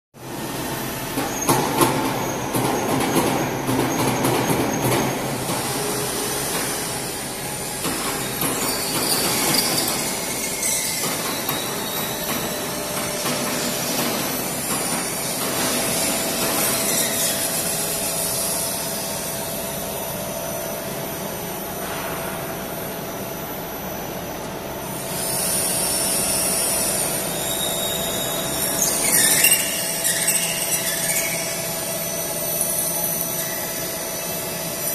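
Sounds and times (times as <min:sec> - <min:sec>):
machine spindle whirring: 0:00.3 - 0:21.8, 0:22.6 - 0:34.9.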